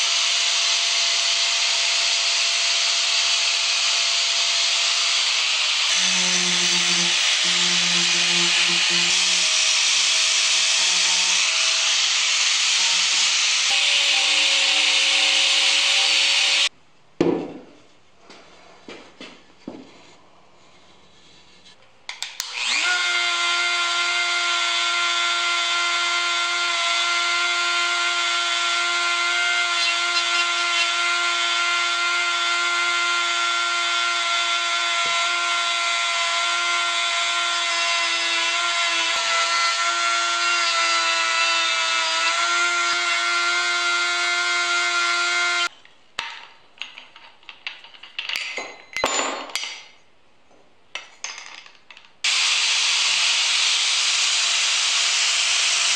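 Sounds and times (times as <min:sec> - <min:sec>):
rotary carving tool whine: 0:00.0 - 0:16.7, 0:22.4 - 0:45.7, 0:52.2 - 0:55.9.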